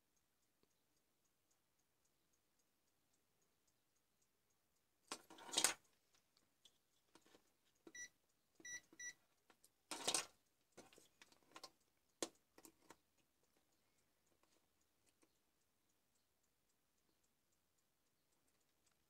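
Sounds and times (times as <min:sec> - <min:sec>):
multimeter high beeps: 0:08.0 - 0:09.2.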